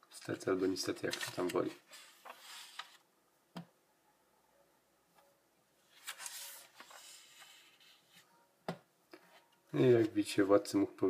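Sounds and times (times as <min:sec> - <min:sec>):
paper pages rustling: 0:00.2 - 0:03.0, 0:05.9 - 0:08.3.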